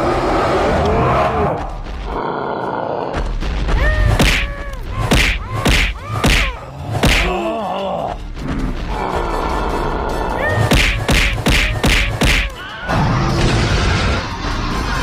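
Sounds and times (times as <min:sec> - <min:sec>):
cartoon cries: 0:03.8 - 0:06.6
cartoon punch impacts: 0:03.8 - 0:07.4, 0:10.6 - 0:12.6.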